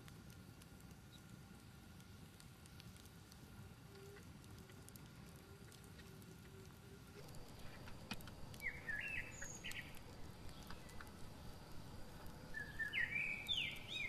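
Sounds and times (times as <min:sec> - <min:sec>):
faint clicks: 0:01.9 - 0:14.0
songbird chirping: 0:07.2 - 0:14.0.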